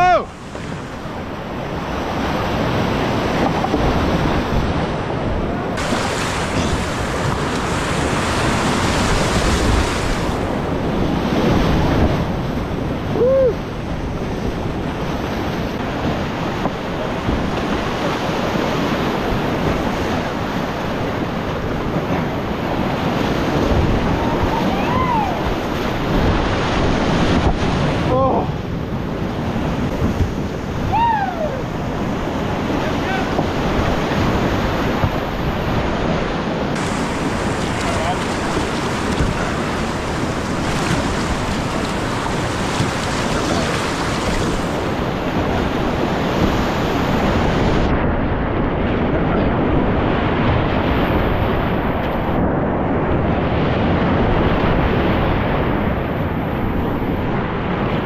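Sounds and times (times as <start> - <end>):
whitewater rapids rushing: 0.0 - 12.3, 15.7 - 28.5, 29.3 - 47.9
person yelping: 31.0 - 31.6.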